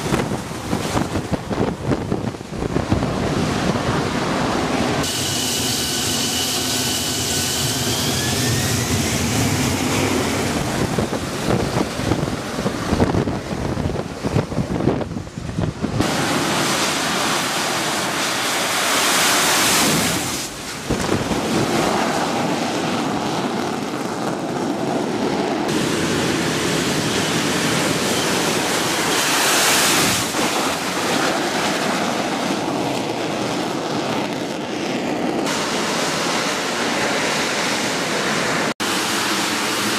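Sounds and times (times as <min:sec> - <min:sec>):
jet engine roaring: 0:00.0 - 0:39.9
turbine whine: 0:00.0 - 0:39.9.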